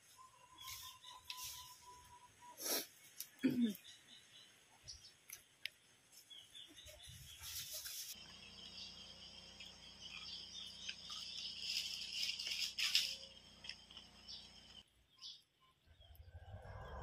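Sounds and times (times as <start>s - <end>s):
insects chirring: 6.5s - 15.4s
crispy chicken crackling: 9.6s - 14.2s.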